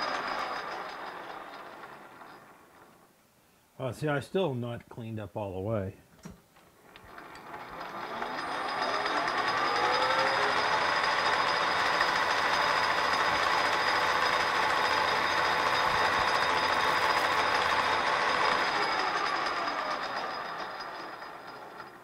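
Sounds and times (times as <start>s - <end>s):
metal lathe cutting: 0.0s - 2.4s, 7.1s - 22.0s.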